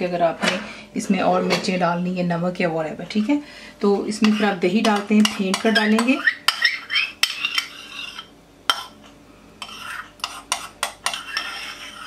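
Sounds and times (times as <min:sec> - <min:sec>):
metal spoon clinking on bowl: 0:04.2 - 0:08.9.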